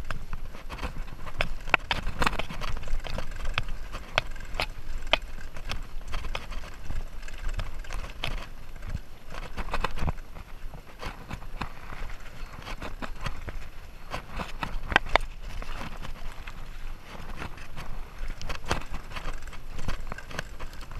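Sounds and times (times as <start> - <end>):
bike chain and parts rattling: 0.0 - 20.9
tyres rumbling on dirt: 0.0 - 20.9.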